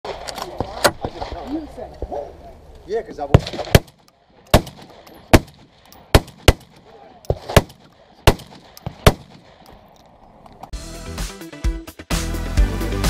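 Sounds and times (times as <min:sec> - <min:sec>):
other guns firing: 0:03.3 - 0:09.6
shotgun shots: 0:03.3 - 0:09.6.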